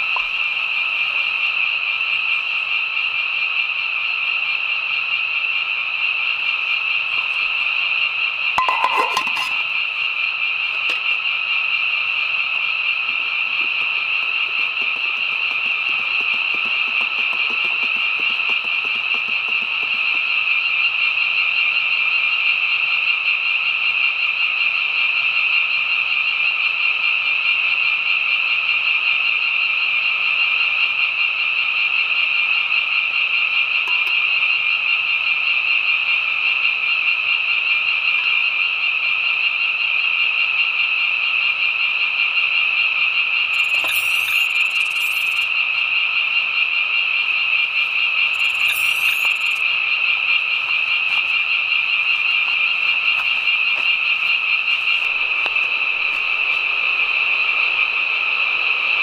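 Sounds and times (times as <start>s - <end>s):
chorus of frogs calling: 0.0s - 27.5s, 32.7s - 59.0s.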